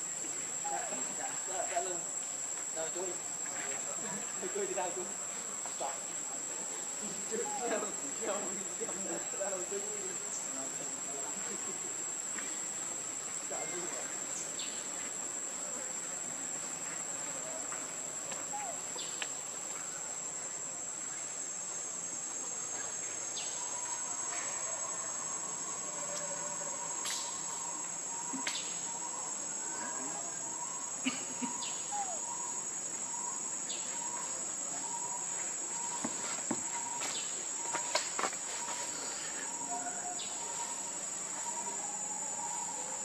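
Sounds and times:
forest insects droning: 0.0s - 43.0s
faint clicks: 19.2s - 19.4s.

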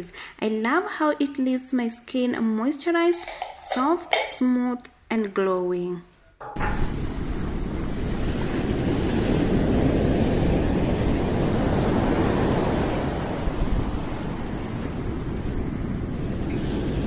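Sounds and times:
steady rushing noise: 6.6s - 17.0s.

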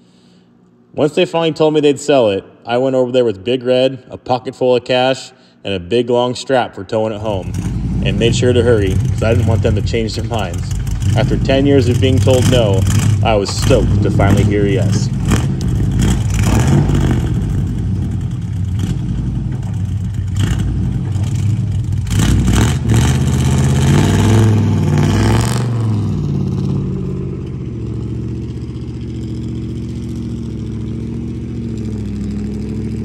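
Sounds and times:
pickup truck engine revving: 7.1s - 33.0s
knocks and rattles: 18.8s - 21.8s.

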